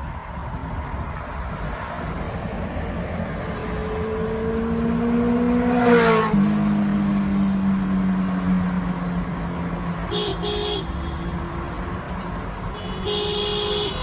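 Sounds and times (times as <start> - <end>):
road noise: 0.0 - 14.0
car horns honking: 10.1 - 11.5, 12.6 - 14.0.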